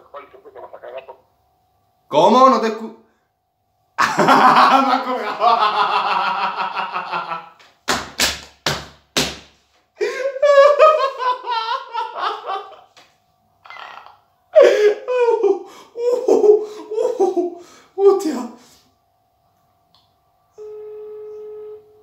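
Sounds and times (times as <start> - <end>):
young man laughing: 4.0 - 7.6, 10.0 - 13.0, 14.6 - 17.7.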